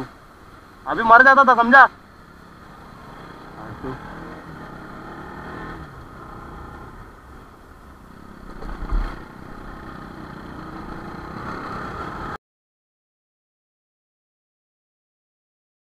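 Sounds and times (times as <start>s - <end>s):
motorcycle engine running: 1.9s - 12.4s.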